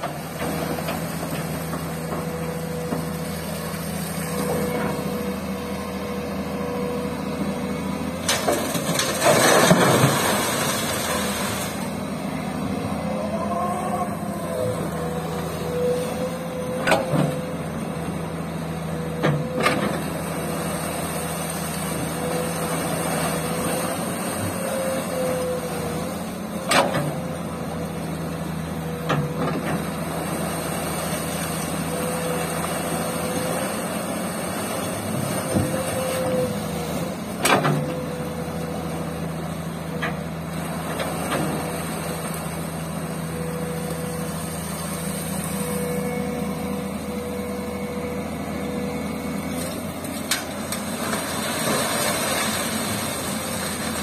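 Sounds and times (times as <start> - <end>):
excavator diesel engine running: 0.0 - 54.0.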